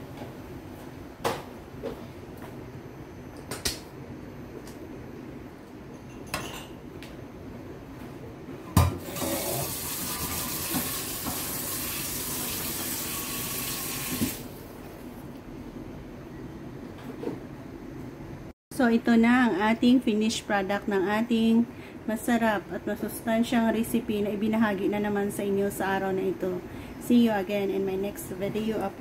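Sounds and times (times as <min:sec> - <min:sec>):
tap running into a sink: 0:08.8 - 0:14.4.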